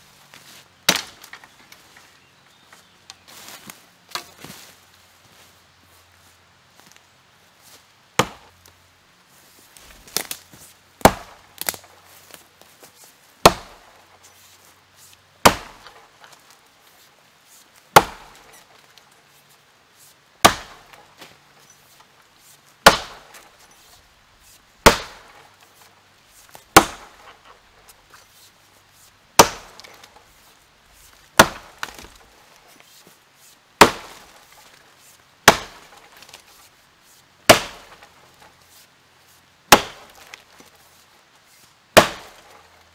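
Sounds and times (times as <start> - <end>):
axe chopping wood: 0.9 - 1.4, 8.2 - 8.5, 11.0 - 11.8, 13.4 - 13.9, 15.4 - 16.1, 17.9 - 18.6, 20.4 - 21.4, 22.8 - 23.6, 24.8 - 25.5, 26.6 - 27.6, 29.4 - 30.2, 31.3 - 32.2, 33.8 - 34.7, 35.4 - 36.4, 37.5 - 38.1, 39.7 - 40.4, 42.0 - 42.6.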